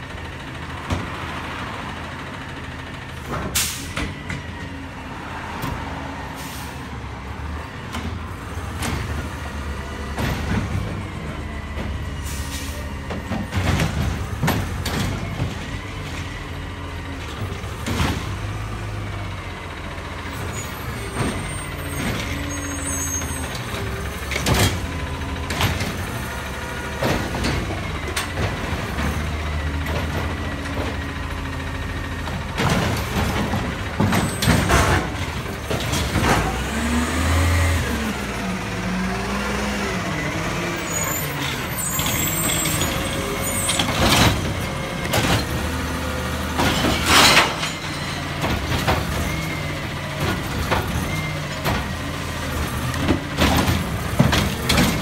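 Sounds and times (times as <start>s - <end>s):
clanks and bangs of carts: 0.0s - 1.7s, 3.1s - 4.6s, 7.8s - 19.3s, 20.0s - 38.0s, 40.8s - 55.0s
diesel engine running: 0.0s - 55.0s
air brakes hissing: 3.6s - 4.0s, 6.4s - 6.8s, 12.2s - 13.0s.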